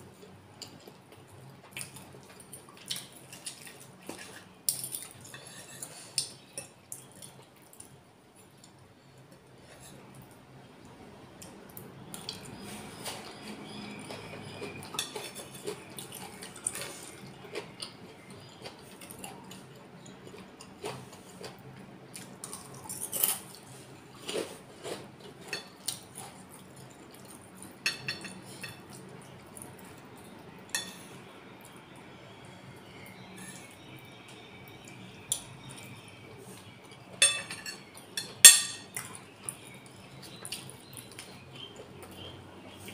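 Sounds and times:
chewing and wet mouth sounds: 0:00.2 - 0:05.3, 0:11.4 - 0:27.8, 0:37.9 - 0:42.9
cutlery clinking on a plate: 0:14.8 - 0:15.8, 0:27.8 - 0:28.9, 0:30.7 - 0:31.0, 0:37.2 - 0:39.1.

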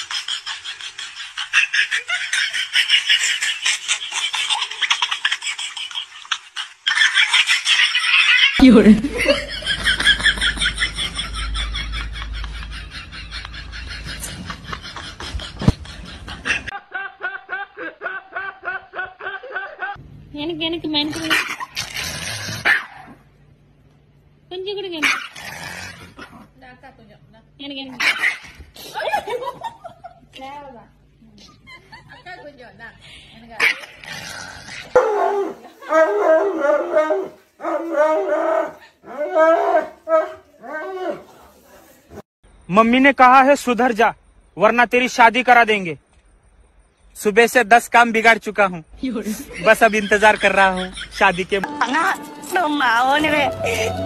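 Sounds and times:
breathy snickering: 0:00.0 - 0:20.0
man laughing hard: 0:08.1 - 0:20.0, 0:49.3 - 0:51.8, 0:53.5 - 0:54.0
dog howling: 0:35.0 - 0:41.3.

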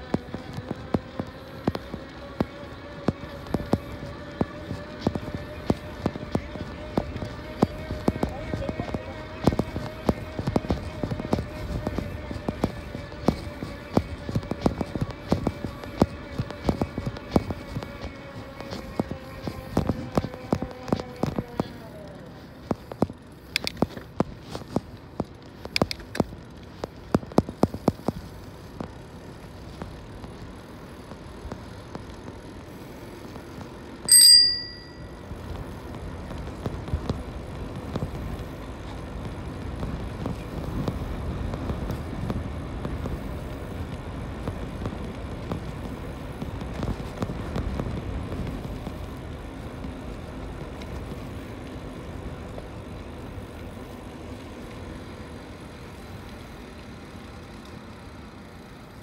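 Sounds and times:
wind and tyre noise: 0:00.0 - 0:59.0
bicycle bell ding: 0:34.1 - 0:35.2.

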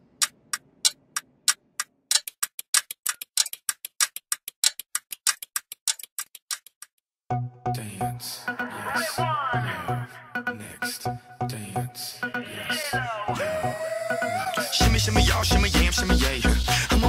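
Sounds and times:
clock ticking: 0:00.0 - 0:06.9
music with deep bass: 0:14.7 - 0:17.0.

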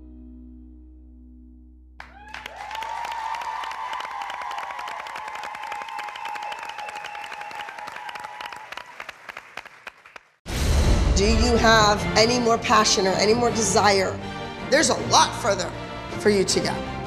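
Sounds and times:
audience cheering: 0:02.0 - 0:10.2
audience clapping: 0:02.0 - 0:10.4.

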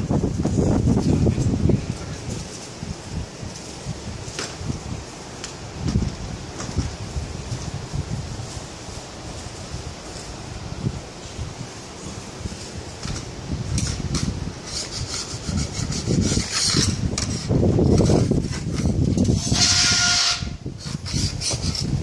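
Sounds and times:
hand scraping door track: 0:13.0 - 0:22.0.

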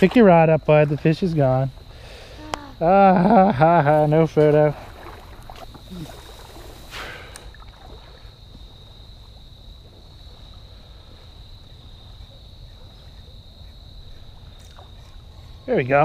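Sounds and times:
short hiss: 0:06.0 - 0:07.5.

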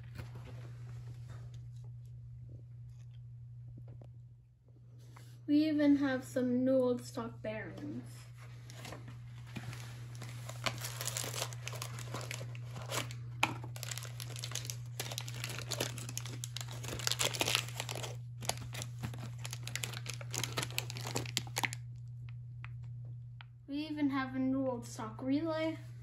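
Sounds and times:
wrapping paper crinkling: 0:08.4 - 0:21.8.

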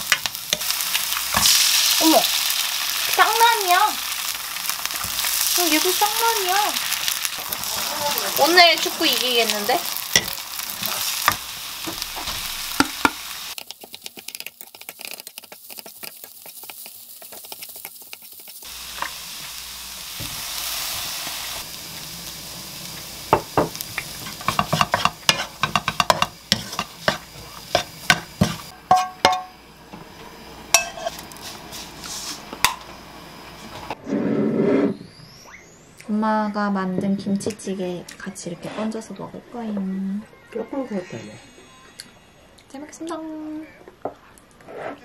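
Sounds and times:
food sizzling in a pan: 0:00.0 - 0:34.0
spatula tapping pan: 0:23.3 - 0:29.5
wooden spatula scraping pan: 0:24.2 - 0:29.1.

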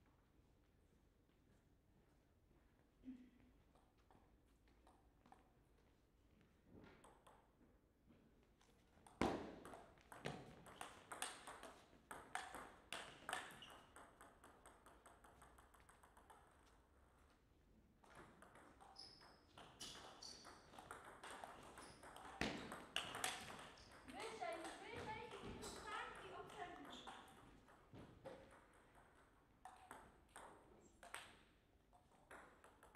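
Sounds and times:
table tennis ball clicking: 0:09.0 - 0:16.6, 0:18.1 - 0:27.8.

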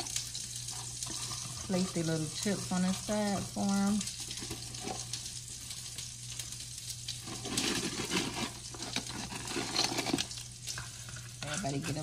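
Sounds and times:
hot dogs sizzling in frying pan: 0:00.0 - 0:12.0.

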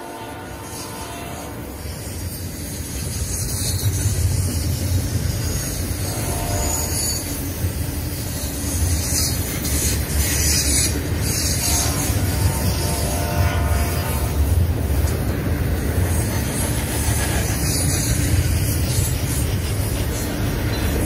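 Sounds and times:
train wheels rumbling on rails: 0:00.0 - 0:21.0
steel on steel hiss: 0:00.6 - 0:21.0.

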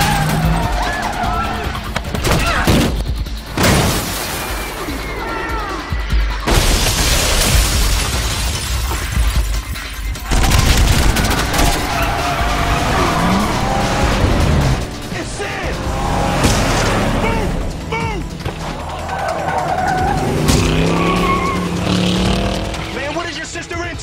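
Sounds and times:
car sounds: 0:00.0 - 0:03.6, 0:10.1 - 0:24.0
action film music: 0:00.0 - 0:24.0
crash and impact effects: 0:06.4 - 0:09.6.

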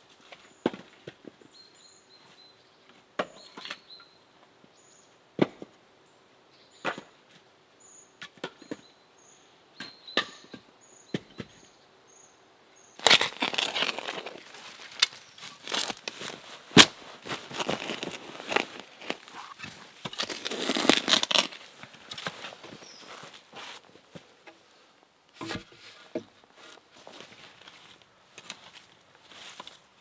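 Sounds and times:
axe chopping firewood: 0:13.0 - 0:22.3
rustling in dry leaves: 0:13.0 - 0:24.1.

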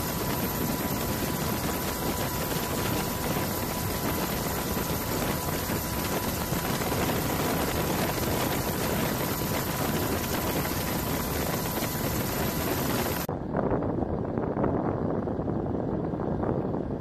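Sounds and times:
helicopter engine and rotor: 0:00.0 - 0:13.3
faint steady whine: 0:00.0 - 0:14.3.

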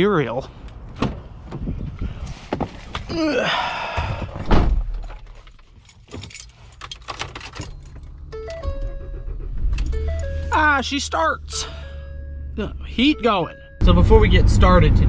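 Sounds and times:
heavy thud: 0:04.0 - 0:05.1
keys jangling: 0:05.1 - 0:08.2.

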